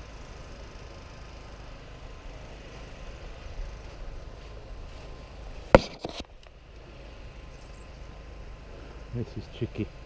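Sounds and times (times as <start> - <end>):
sharp crack: 5.7 - 6.6.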